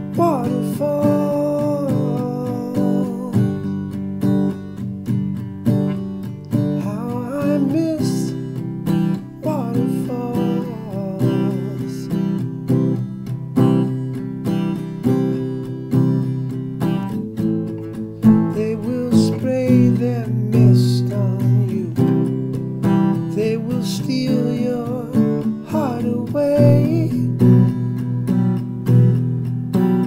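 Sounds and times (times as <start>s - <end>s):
acoustic guitar strumming: 0.0s - 30.0s
man singing: 0.1s - 3.9s, 6.6s - 12.5s, 18.2s - 22.4s, 23.1s - 27.9s.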